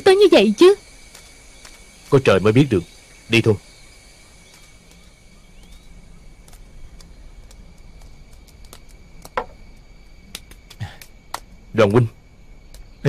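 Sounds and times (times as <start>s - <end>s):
low hiss: 0.0s - 13.0s
faint clicks: 4.4s - 11.5s, 12.7s - 12.9s.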